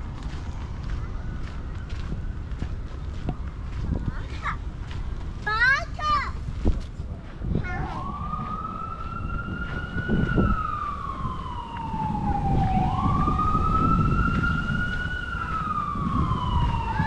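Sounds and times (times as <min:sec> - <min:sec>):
emergency siren wailing: 0:00.0 - 0:03.0, 0:07.6 - 0:17.0.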